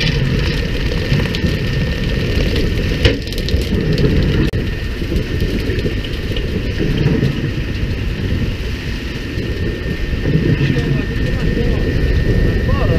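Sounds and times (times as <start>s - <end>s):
boat engine running: 0.0s - 12.9s.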